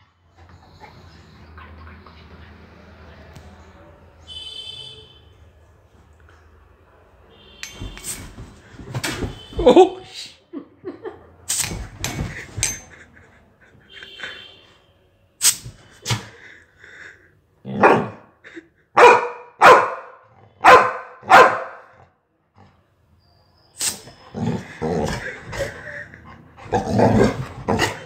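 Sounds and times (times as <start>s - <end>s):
dog barking: 17.8s - 18.2s, 19.0s - 22.0s.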